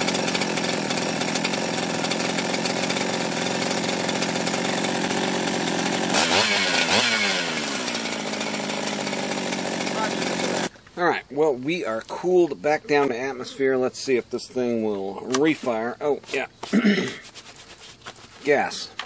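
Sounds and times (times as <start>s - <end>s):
chainsaw running near idle: 0.0s - 10.7s.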